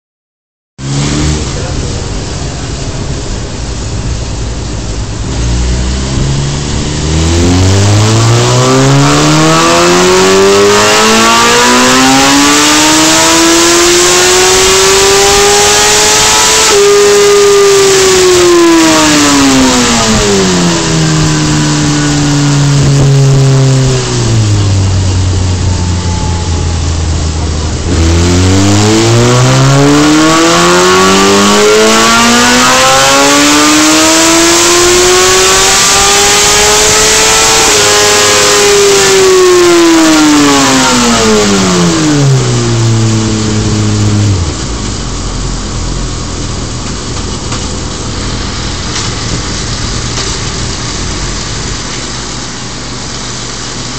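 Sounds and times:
motorcycle engine revving: 0:00.8 - 0:53.9.

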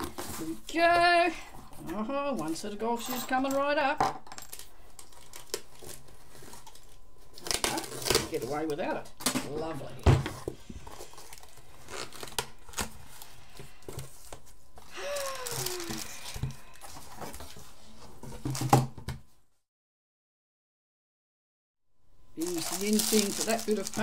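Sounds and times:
paper and tape rustling and tearing: 0:05.0 - 0:08.8, 0:10.4 - 0:18.9, 0:22.4 - 0:24.0.

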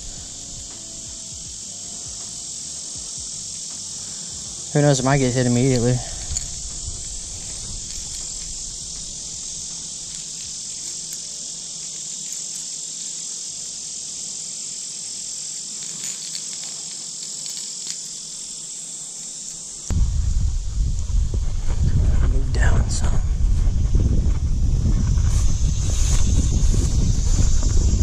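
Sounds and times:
insects buzzing: 0:00.0 - 0:28.0
low rumble: 0:19.9 - 0:28.0.

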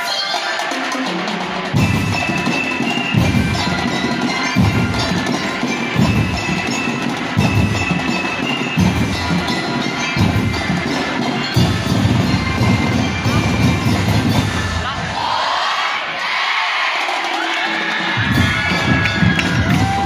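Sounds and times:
heavy drum beats: 0:00.3 - 0:15.2, 0:16.8 - 0:20.0
bell lyres ringing a melody: 0:01.8 - 0:14.6, 0:18.3 - 0:20.0.

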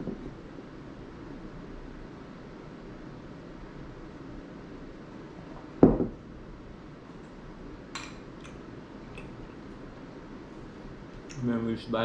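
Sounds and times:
mug thud on wooden table: 0:05.8 - 0:06.2
tableware clink: 0:07.9 - 0:08.6.

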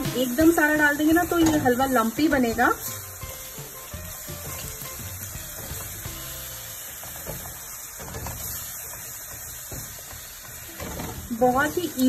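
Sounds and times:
sizzling in a hot pan: 0:00.0 - 0:12.0
spatula stirring: 0:00.1 - 0:12.0.

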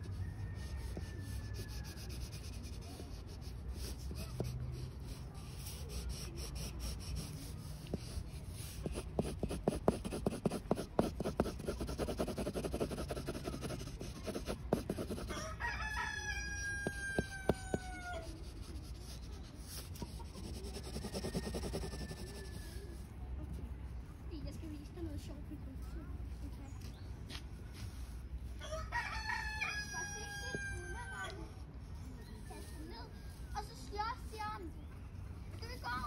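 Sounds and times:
rooster crowing: 0:00.0 - 0:02.4, 0:14.9 - 0:18.4, 0:20.7 - 0:23.0, 0:28.6 - 0:31.4
pencil scratching on paper: 0:00.0 - 0:15.4, 0:16.6 - 0:22.7.

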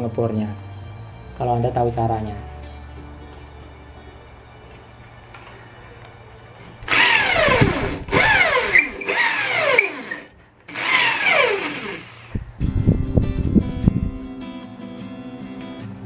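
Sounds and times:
electric drill boring into wood: 0:06.9 - 0:12.4.

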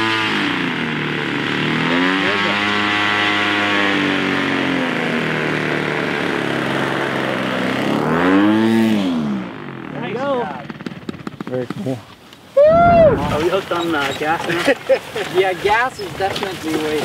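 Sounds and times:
model plane engine running: 0:00.0 - 0:11.4.

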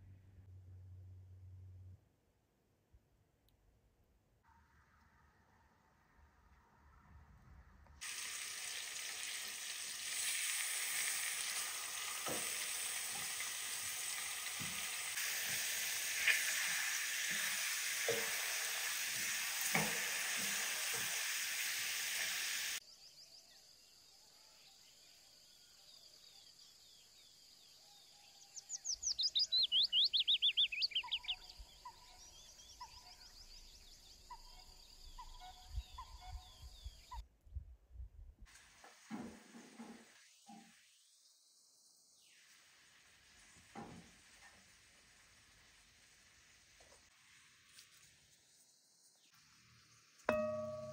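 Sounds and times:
chicken sizzling in a pan: 0:08.0 - 0:22.8, 0:38.5 - 0:40.9, 0:42.2 - 0:50.9
bird singing trill: 0:27.8 - 0:37.2, 0:50.3 - 0:50.9
wooden spatulas knocking: 0:50.3 - 0:50.9.

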